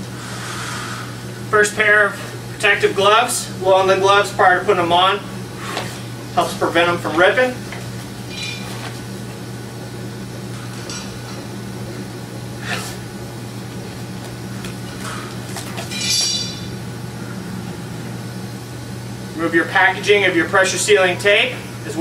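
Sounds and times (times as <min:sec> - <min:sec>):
low hum: 0:10.5 - 0:20.4.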